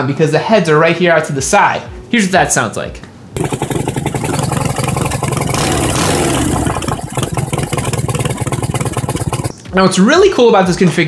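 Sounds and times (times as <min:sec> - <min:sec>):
motorcycle engine running: 0:03.4 - 0:09.6.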